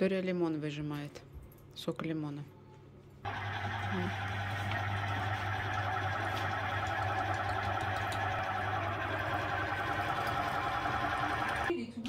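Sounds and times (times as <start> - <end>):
citrus juicer motor humming: 3.3 - 11.7.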